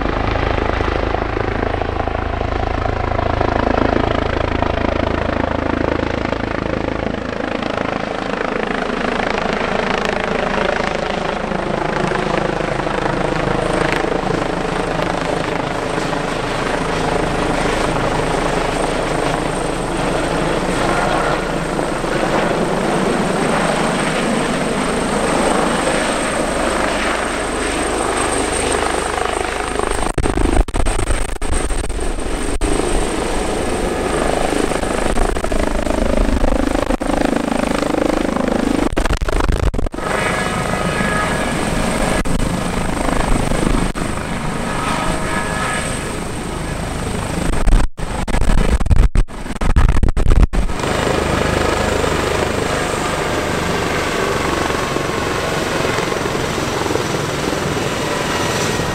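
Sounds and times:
helicopter rotor and turbine noise: 0.0 - 58.9.

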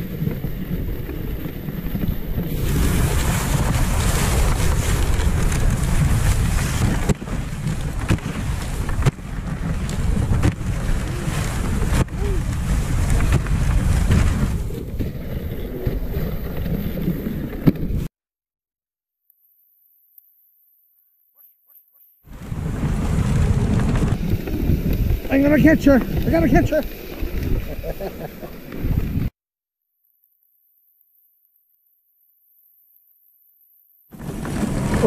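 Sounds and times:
sled runners hissing on snow: 0.0 - 17.5, 22.3 - 29.3
sharp knocks from sled: 1.9 - 15.2
wind buffeting microphone: 22.3 - 29.3.

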